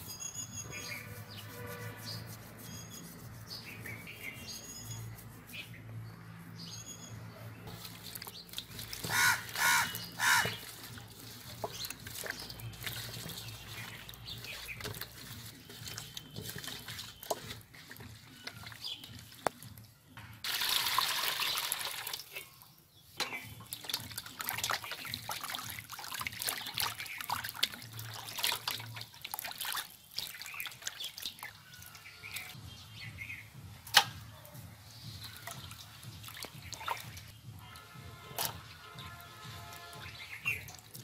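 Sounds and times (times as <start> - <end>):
water pouring into metal bowl: 7.7 - 19.5, 20.4 - 22.6, 23.6 - 32.6.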